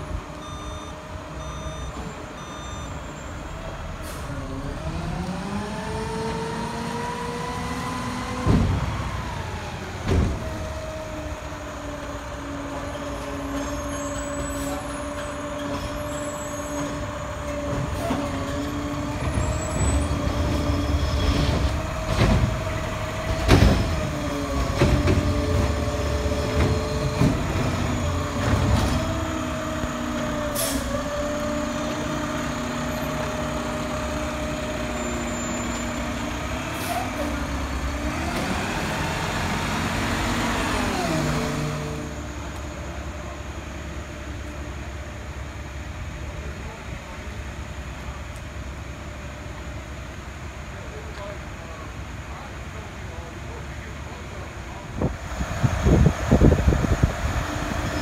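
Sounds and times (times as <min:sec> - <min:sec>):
diesel truck engine revving: 0:00.0 - 0:44.1, 0:54.4 - 0:58.0
backup alarm beeping: 0:00.4 - 0:03.2.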